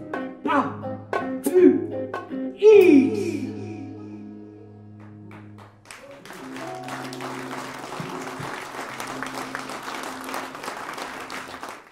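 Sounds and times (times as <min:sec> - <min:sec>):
audience applause: 0:05.3 - 0:11.9.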